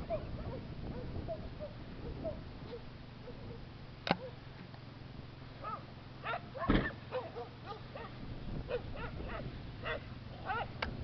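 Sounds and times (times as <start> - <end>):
distant atv engine drone: 0.0 - 11.0
dogs barking: 0.1 - 4.4, 5.6 - 10.8
thump: 6.6 - 7.0.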